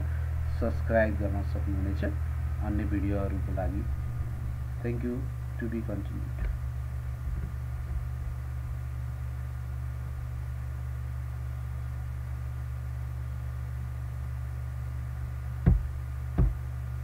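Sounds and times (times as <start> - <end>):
person speaking: 0.0 - 6.6
low electrical hum with hiss: 0.0 - 17.0.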